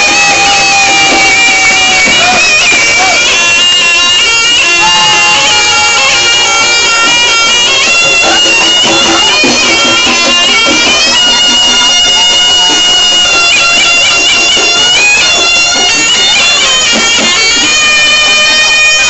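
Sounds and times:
accompanying ensemble: 0.0s - 19.0s
shrill shawm melody: 0.0s - 19.0s.

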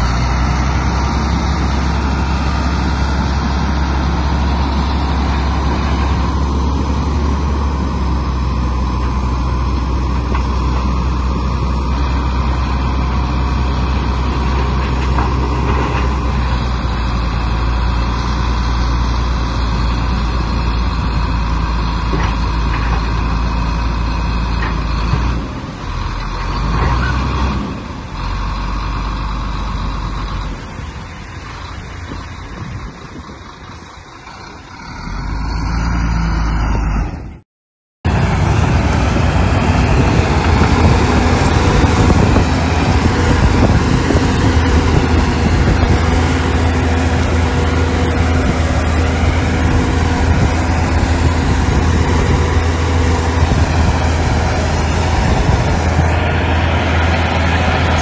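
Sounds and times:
bulldozer diesel engine droning: 0.0s - 37.4s, 38.0s - 58.0s.

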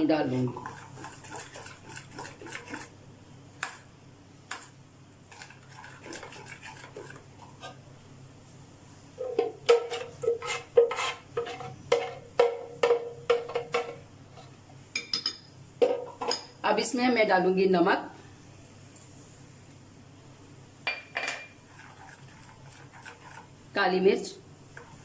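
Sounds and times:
spoon scraping blender jar: 0.6s - 2.9s, 5.3s - 7.8s, 9.9s - 12.2s, 21.7s - 23.5s.

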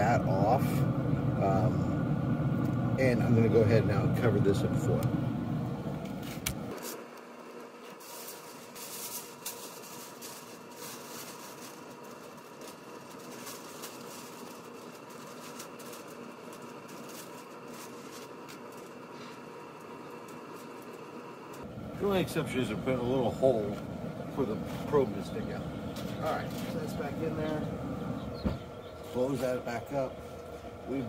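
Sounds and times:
low rumble: 0.0s - 6.7s, 21.6s - 31.0s
low mechanical hum: 0.0s - 31.0s
aluminium foil crinkling: 6.3s - 21.6s.

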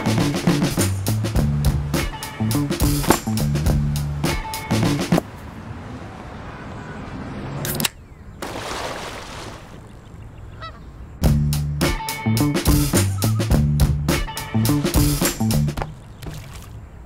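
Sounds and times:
body splashing into water: 8.4s - 9.9s, 16.2s - 16.8s
goose-like honk: 10.5s - 10.9s.

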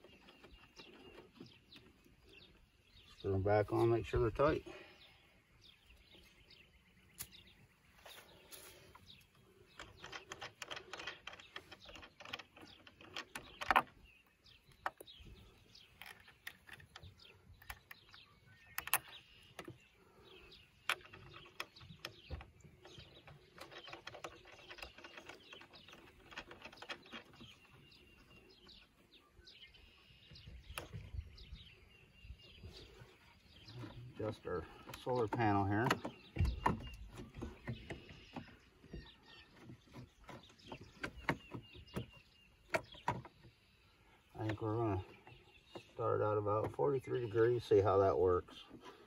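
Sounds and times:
birds chirping: 0.0s - 49.0s
hardware clicks and rattles: 9.7s - 14.0s.

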